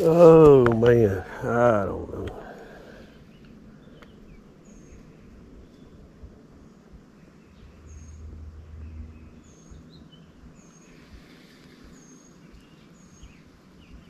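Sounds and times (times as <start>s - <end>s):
bird calling: 0.0s - 6.0s
soft bird chirps: 0.8s - 14.0s
low rumble: 4.3s - 10.7s.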